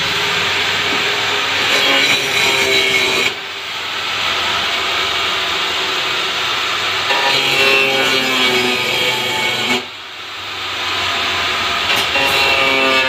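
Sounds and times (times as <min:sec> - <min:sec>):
angle grinder cutting plastic: 0:00.0 - 0:09.9, 0:11.5 - 0:13.0.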